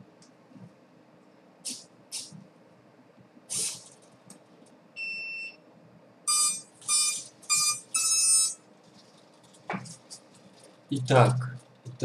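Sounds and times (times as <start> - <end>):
short hiss: 3.5 - 4.0
electronic beeps: 6.3 - 8.6.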